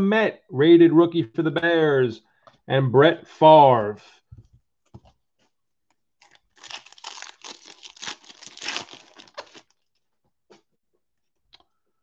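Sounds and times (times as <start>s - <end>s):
foil wrapper tearing and crinkling: 6.2s - 9.8s.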